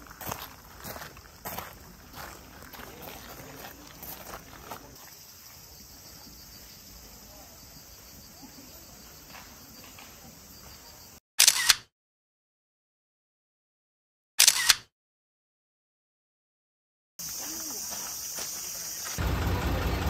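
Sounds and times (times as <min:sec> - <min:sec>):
footsteps on gravel: 0:00.0 - 0:05.2, 0:17.2 - 0:19.2
high insect drone: 0:00.0 - 0:11.2, 0:17.2 - 0:20.0
camera shutter click: 0:11.4 - 0:11.9, 0:14.4 - 0:14.9.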